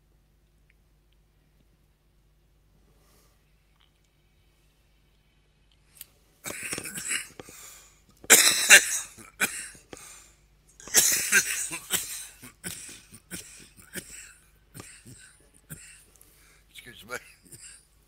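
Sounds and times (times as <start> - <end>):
person coughing: 6.5 - 7.6, 8.3 - 9.9, 10.8 - 16.1, 17.1 - 17.9
throat clearing: 6.5 - 7.6, 10.8 - 16.1.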